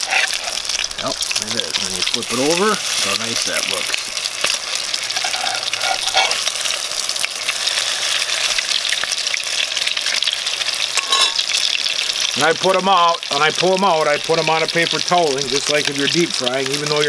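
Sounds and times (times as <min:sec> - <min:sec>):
metal spatula turning food: 0:00.0 - 0:09.3, 0:10.0 - 0:12.1
fish cakes sizzling in oil: 0:00.0 - 0:17.0.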